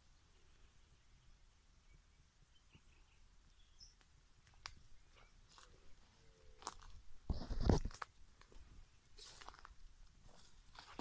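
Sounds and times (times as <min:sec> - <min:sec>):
footsteps crunching through dry leaves: 0:09.2 - 0:11.0.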